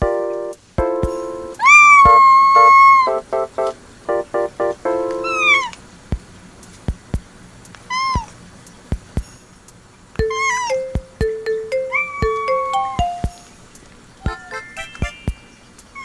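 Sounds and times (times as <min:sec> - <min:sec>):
plucked background music: 0:00.0 - 0:05.7, 0:10.2 - 0:13.6, 0:14.3 - 0:15.5
cat meowing: 0:01.6 - 0:03.1, 0:05.2 - 0:05.8, 0:07.9 - 0:08.4, 0:10.3 - 0:10.8, 0:11.9 - 0:12.7.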